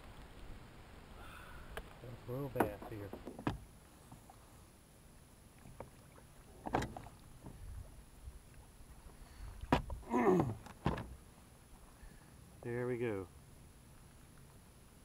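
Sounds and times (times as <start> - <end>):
knocks and light rattling: 2.5 - 4.2.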